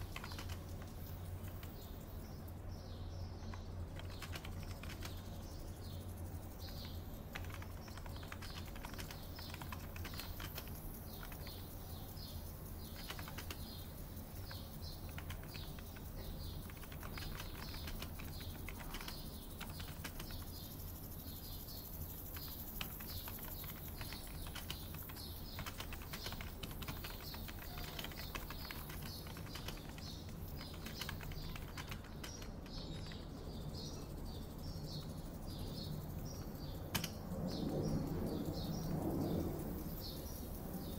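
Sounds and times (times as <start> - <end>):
typing on keyboard: 0.0 - 2.4, 3.2 - 40.2
birds chirping: 0.0 - 40.9
steady low hum: 0.0 - 40.9.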